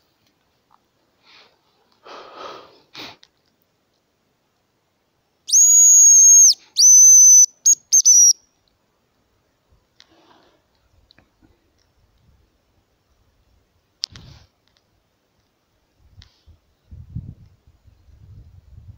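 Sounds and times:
high decoy whistle notes: 5.5 - 8.4.

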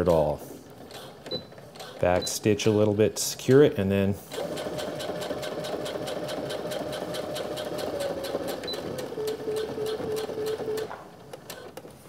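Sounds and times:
sewing machine motor humming: 0.7 - 3.2, 4.3 - 11.7.

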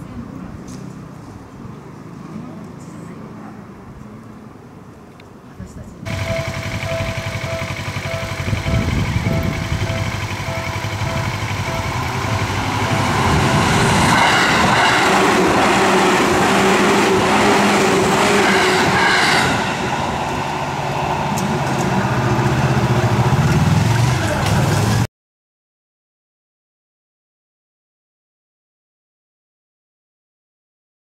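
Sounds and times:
train passing over crossing: 6.0 - 25.1
level-crossing bell ringing: 6.1 - 13.6.

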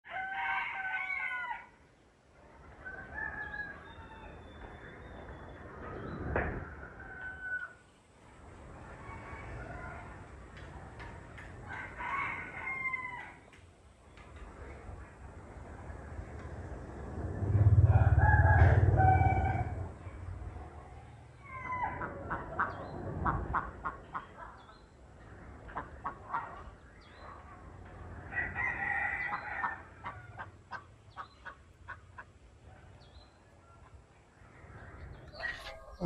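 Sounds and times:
rooster crowing: 0.1 - 1.8, 6.7 - 7.8, 11.6 - 13.4, 17.7 - 20.0, 28.3 - 30.5.

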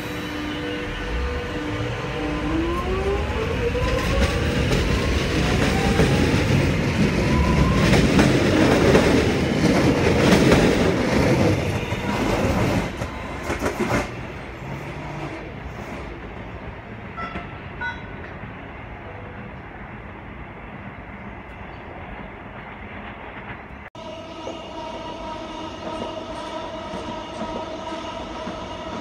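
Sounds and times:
train whine rising in pitch: 0.0 - 9.5, 24.0 - 29.0
train rumble: 0.0 - 29.0.

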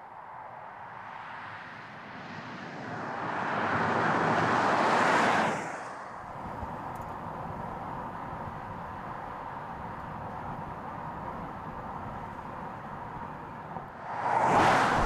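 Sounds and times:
car tyre noise passing by: 0.2 - 15.0
faint steady background rush: 6.1 - 14.2.

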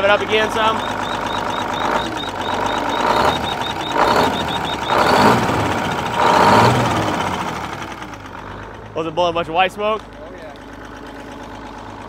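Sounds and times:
rapid high ticking: 0.0 - 8.9
diesel truck engine revving: 0.0 - 12.0.

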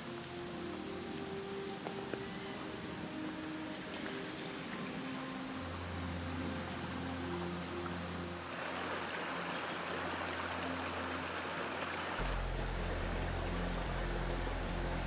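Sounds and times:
background music with bass: 12.2 - 15.0.

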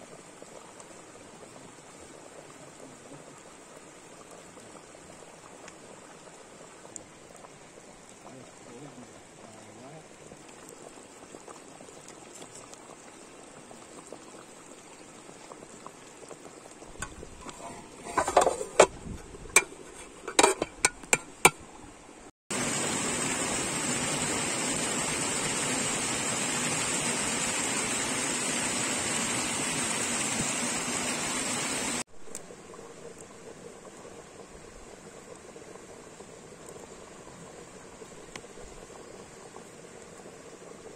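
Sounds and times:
stew bubbling in a pot: 0.0 - 40.9
sharp clicks and knocks: 18.1 - 21.6.

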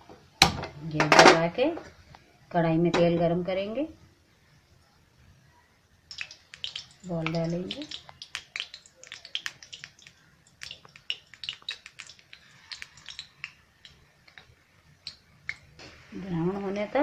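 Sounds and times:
hot oil crackling and popping: 6.0 - 16.2.

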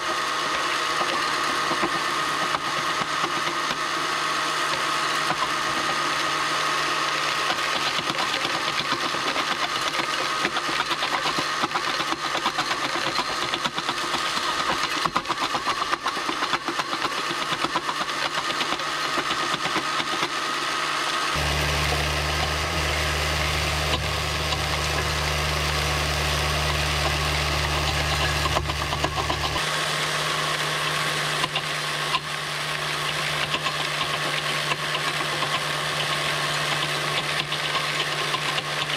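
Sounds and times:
electric motors whining: 0.0 - 38.9
deep steady hum: 21.4 - 33.4.

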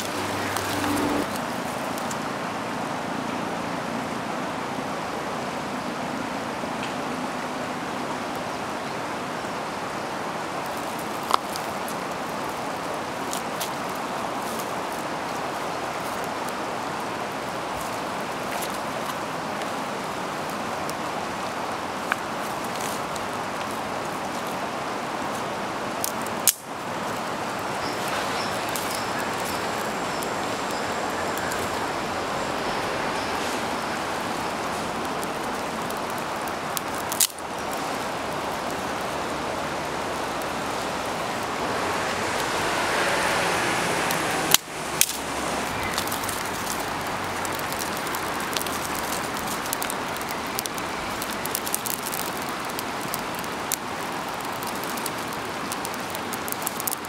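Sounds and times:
river rushing: 0.0 - 57.0
small ticks: 10.6 - 12.6, 27.8 - 31.9, 34.3 - 39.2, 45.8 - 57.0.

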